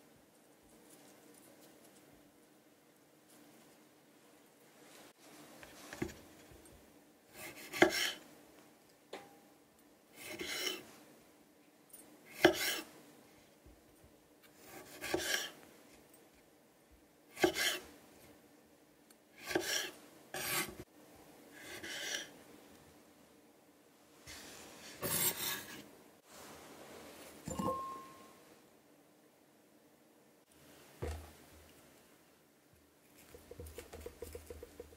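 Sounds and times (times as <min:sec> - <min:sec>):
knife slicing tomatoes: 0:07.3 - 0:08.2, 0:14.5 - 0:15.6, 0:17.4 - 0:17.8, 0:19.4 - 0:20.8
knife tapping wooden board: 0:33.3 - 0:34.9.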